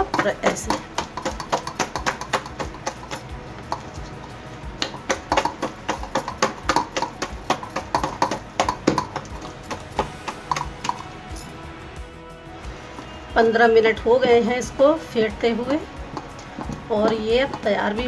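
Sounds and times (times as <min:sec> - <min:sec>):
batter slapping in steel bowl: 0:00.0 - 0:11.2.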